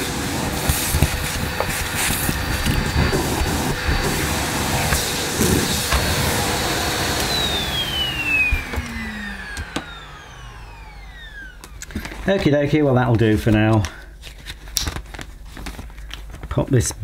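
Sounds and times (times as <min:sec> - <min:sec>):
vacuum cleaner motor spinning down: 0:00.0 - 0:12.8.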